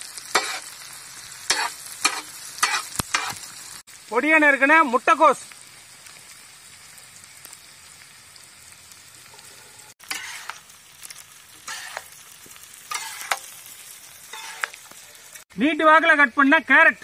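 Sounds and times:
vegetables sizzling in oil: 0.0s - 17.0s
metal spatula scraping: 0.3s - 0.8s, 1.5s - 3.5s, 9.4s - 10.7s, 11.6s - 12.2s, 12.9s - 13.6s, 14.2s - 14.8s.

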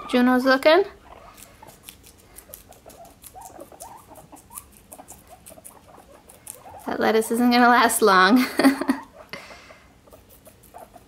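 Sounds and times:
guinea pig squeaks and chirps: 0.0s - 8.1s, 9.0s - 9.3s, 9.9s - 11.0s
guinea pigs crunching lettuce: 0.1s - 8.2s, 10.0s - 11.0s.

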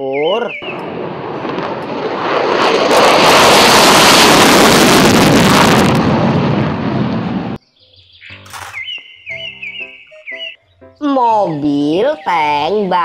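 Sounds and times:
fighter jet engine roaring: 0.0s - 7.6s.

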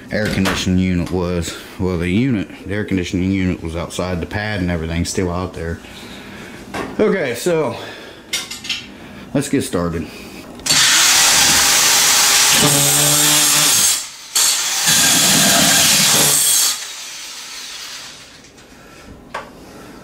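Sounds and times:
drill cutting through drywall: 10.6s - 18.4s.

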